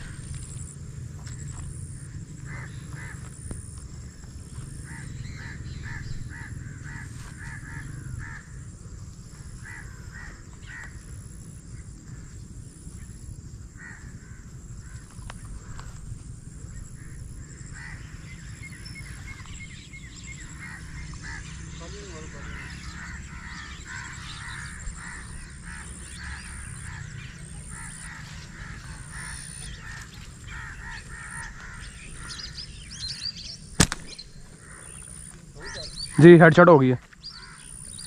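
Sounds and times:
crows cawing: 0.0 - 12.4, 13.0 - 38.0
steady low rumble: 0.0 - 36.2.

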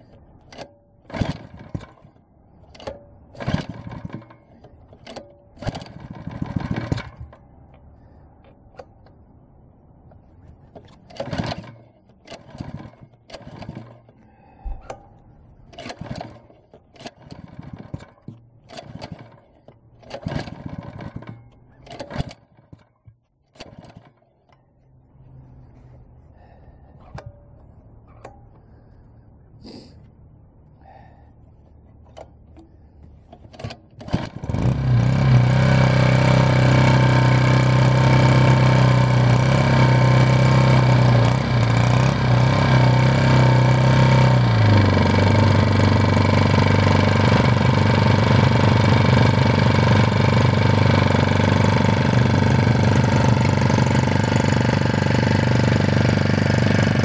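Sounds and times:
small engine running: 0.5 - 7.4, 10.8 - 15.0, 15.7 - 22.8, 33.3 - 57.0.

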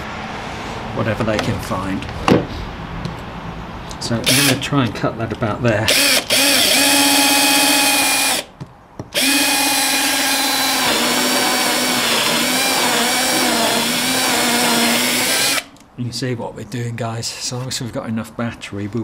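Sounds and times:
cordless drill motor whine: 4.3 - 4.6, 5.9 - 8.5, 9.2 - 15.7.

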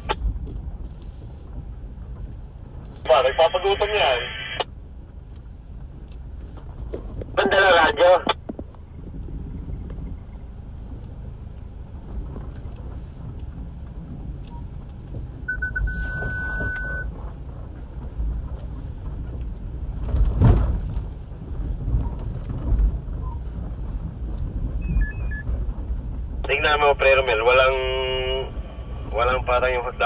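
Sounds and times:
off-road vehicle engine rumble: 0.0 - 30.0
high steady tone: 15.5 - 17.1, 24.8 - 25.5.

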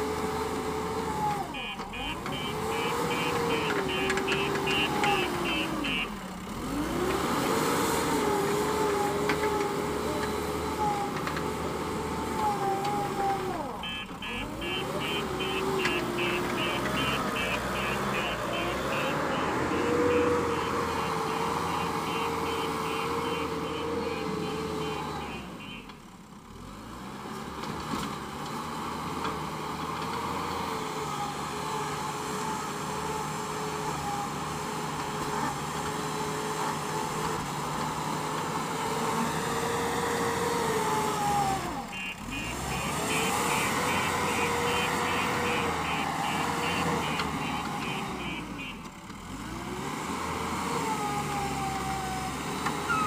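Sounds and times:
diesel engine under load: 0.0 - 53.0
reversing alarm beeping: 1.5 - 6.2, 13.8 - 25.9, 41.8 - 48.9.

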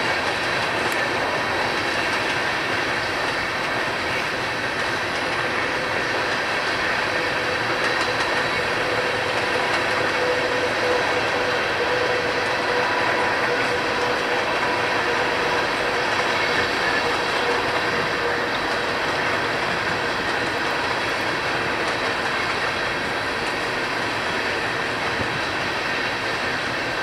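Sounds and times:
train wheels rumbling on rail: 0.0 - 27.0.

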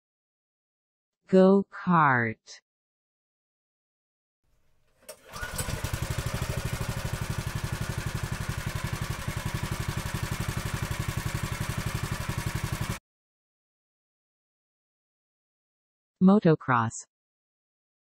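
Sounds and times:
go-kart engine idling: 5.1 - 13.0.

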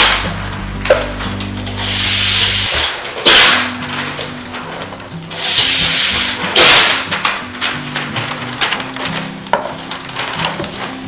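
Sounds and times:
background music: 0.0 - 11.0.

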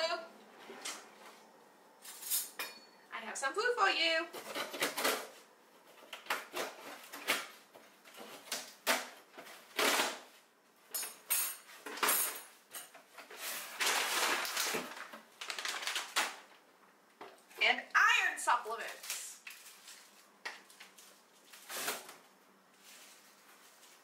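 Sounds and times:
plastic bag rustling: 13.2 - 16.5, 18.8 - 24.0
packing tape peeled and torn: 13.8 - 16.4, 18.9 - 20.8.

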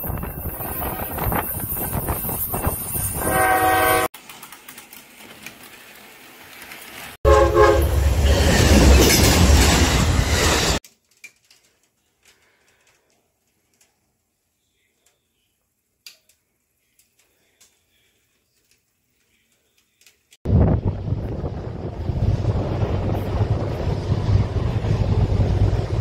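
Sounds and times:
loud train rumble: 0.0 - 4.1, 7.2 - 10.8, 20.5 - 26.0
train horn: 3.2 - 4.1, 7.2 - 8.1.

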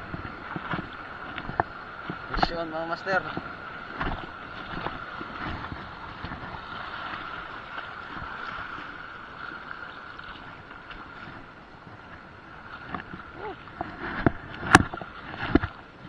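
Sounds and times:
seawater splashing and sloshing: 0.0 - 16.0
wind noise on microphone: 11.2 - 16.0.

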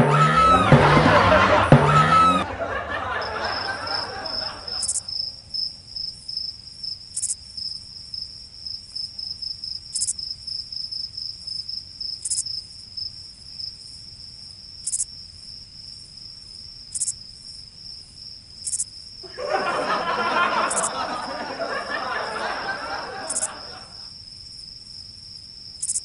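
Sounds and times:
crickets chirping: 2.6 - 26.0
high-pitched insect buzz: 4.8 - 5.0, 7.2 - 7.4, 9.9 - 10.2, 12.2 - 12.5, 14.8 - 15.1, 16.9 - 17.2, 18.6 - 18.9, 25.8 - 26.0.

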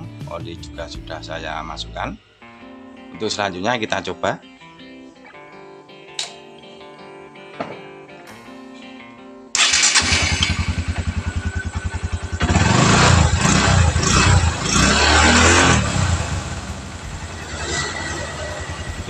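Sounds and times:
motorcycle engine idling and revving: 9.6 - 19.0.

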